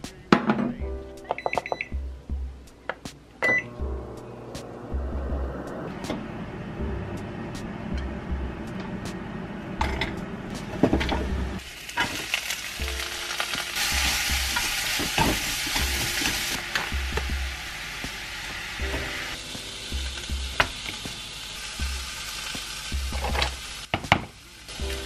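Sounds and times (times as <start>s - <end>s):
onion and mushrooms sizzling in pan: 10.6s - 25.0s.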